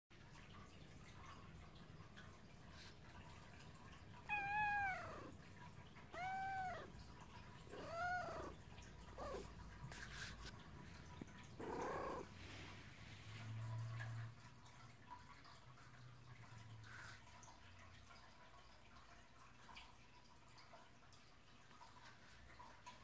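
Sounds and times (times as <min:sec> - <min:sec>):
cat meowing: 0:04.2 - 0:05.4, 0:06.1 - 0:06.9, 0:07.7 - 0:09.5, 0:11.6 - 0:12.3.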